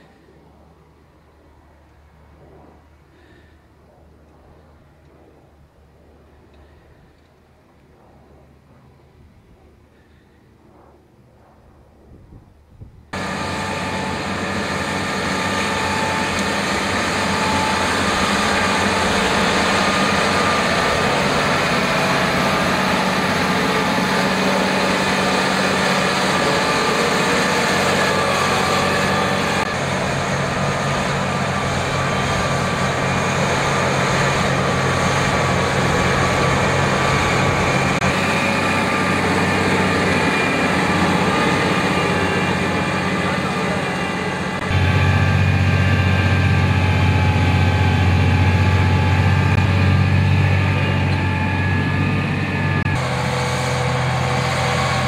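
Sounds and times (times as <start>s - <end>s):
tractor engine under load: 13.2s - 55.0s.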